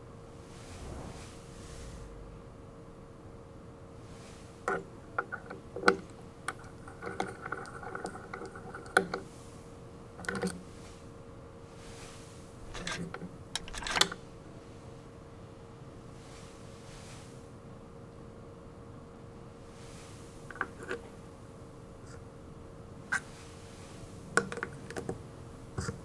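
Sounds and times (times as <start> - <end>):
small metallic clicks: 12.7 - 14.2.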